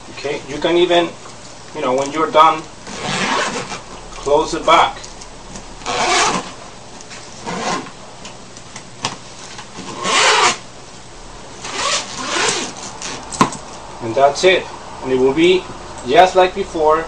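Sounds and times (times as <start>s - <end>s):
zipper rasping: 2.8s - 3.9s, 5.8s - 6.6s, 7.4s - 7.9s, 9.8s - 10.6s, 11.6s - 13.4s.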